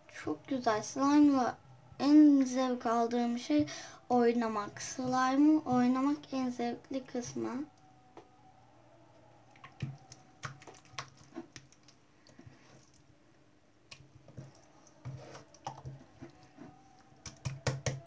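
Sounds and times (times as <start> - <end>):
hands squishing wet slime: 9.5 - 13.1, 13.9 - 16.4, 17.0 - 18.0.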